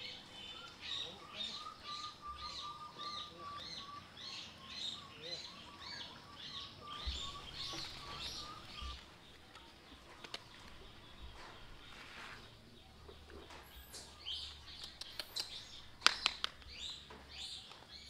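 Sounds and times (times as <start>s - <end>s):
high-pitched chirping calls: 0.0s - 9.0s.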